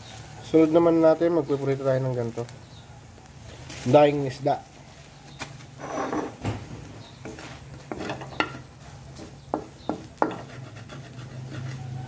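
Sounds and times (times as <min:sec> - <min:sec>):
light sizzle: 0:00.0 - 0:10.3
wooden spatula scraping wok: 0:05.7 - 0:12.0.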